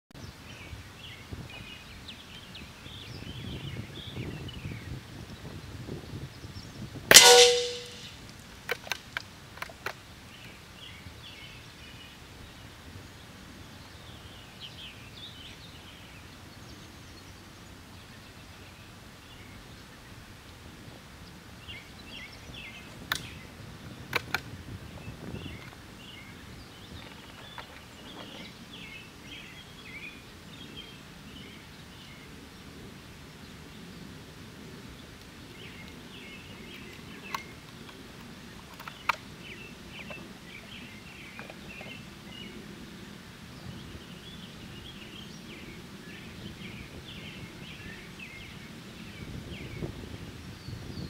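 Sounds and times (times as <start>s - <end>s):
birds chirping: 6.3s - 8.2s, 21.2s - 51.0s
rifle shot with ringing tail: 7.1s - 8.2s.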